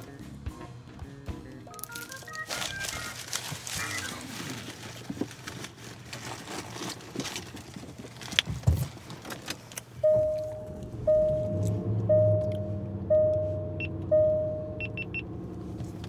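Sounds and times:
clicks and rustles of eating: 1.6s - 10.0s
steady electronic tone: 10.0s - 15.2s.

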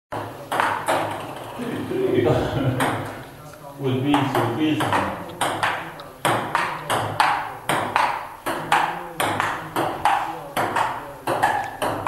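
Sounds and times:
table tennis ball clicking: 4.2s - 12.0s.

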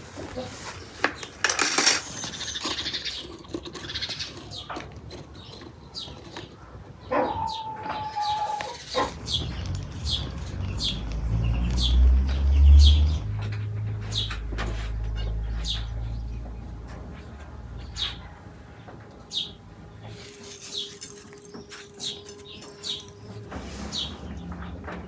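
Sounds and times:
charcoal clinking in metal bucket: 1.2s - 6.8s, 20.2s - 23.4s
farm animal calling: 6.0s - 13.3s
bird chirps: 7.1s - 14.4s, 19.2s - 24.7s.

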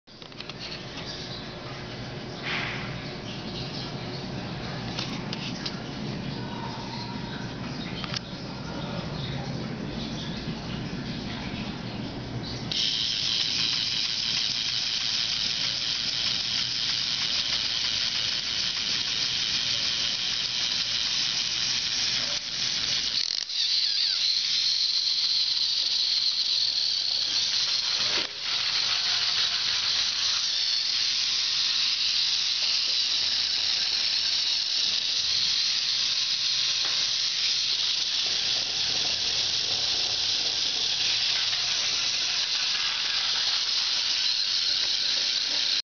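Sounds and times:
toy robot motor whirring: 12.7s - 45.8s.

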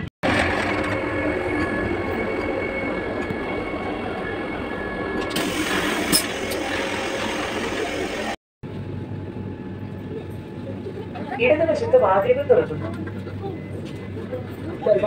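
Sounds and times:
train running noise: 0.0s - 15.0s
toilet flush hissing: 5.3s - 8.4s.

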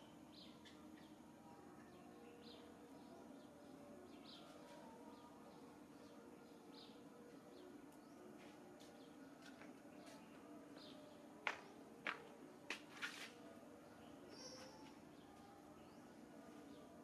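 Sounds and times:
faint steady hum: 0.0s - 17.0s
faint high chirp: 13.9s - 17.0s.

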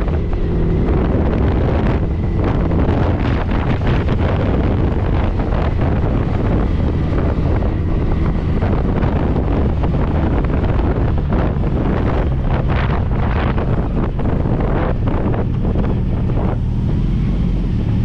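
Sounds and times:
motorcycle running: 0.0s - 18.0s
wind buffeting microphone: 0.0s - 18.0s.

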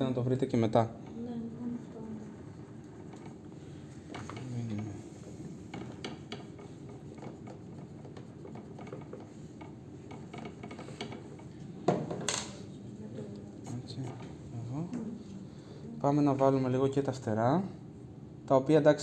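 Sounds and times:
drawing tool scratching on wood: 1.6s - 11.6s.

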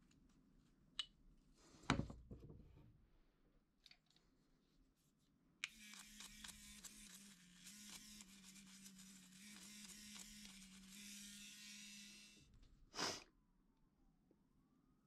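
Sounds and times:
rotary tool working wood: 5.7s - 12.5s.

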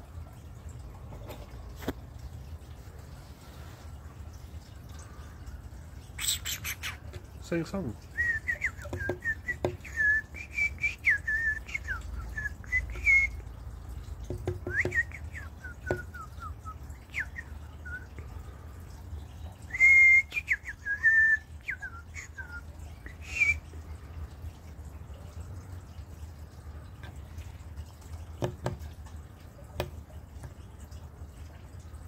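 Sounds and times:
whistled chirps: 8.1s - 13.4s, 14.6s - 18.2s, 19.7s - 23.7s
sharp taps: 28.4s - 28.8s.

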